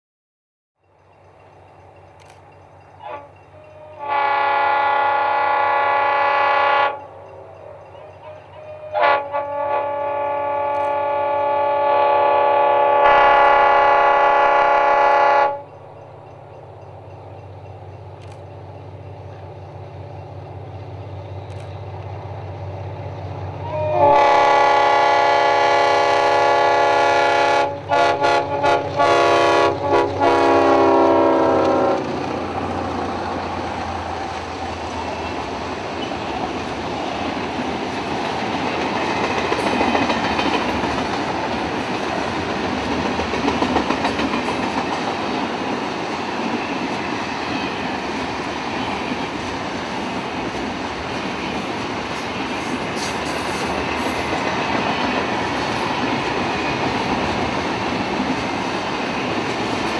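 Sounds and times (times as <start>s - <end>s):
diesel locomotive engine rumble: 0.8s - 59.9s
train horn blasts: 3.0s - 15.8s, 23.6s - 32.1s
wagon wheels clattering on rail: 33.7s - 49.6s.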